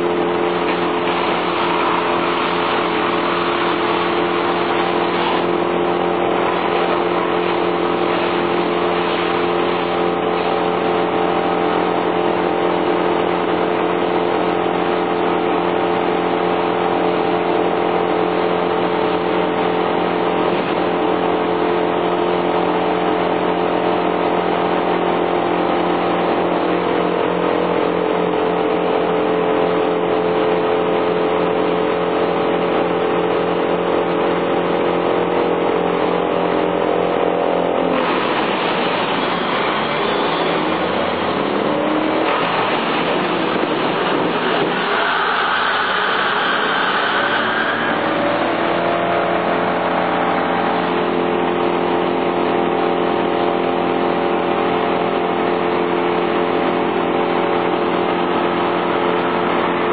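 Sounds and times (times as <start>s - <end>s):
chainsaw cutting tree trunk: 37.7s - 59.9s.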